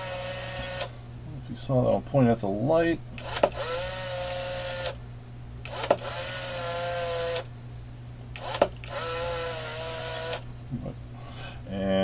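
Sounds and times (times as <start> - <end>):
camera motor whirring: 0.0 - 0.9, 3.2 - 5.0, 5.6 - 7.5, 8.3 - 10.5
camera shutter click: 3.2 - 5.0, 5.7 - 7.5, 8.4 - 10.4.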